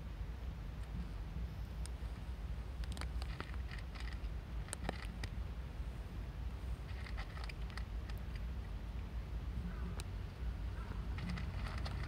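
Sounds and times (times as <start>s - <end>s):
steady low rumble: 0.0s - 12.0s
cat crunching dry kibble: 2.8s - 5.4s, 6.8s - 8.5s, 11.1s - 12.0s.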